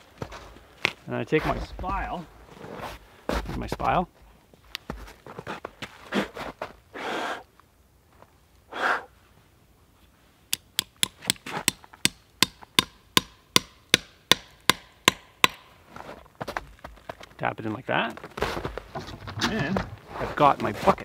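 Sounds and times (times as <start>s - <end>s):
sharp metallic taps: 10.5s - 15.7s.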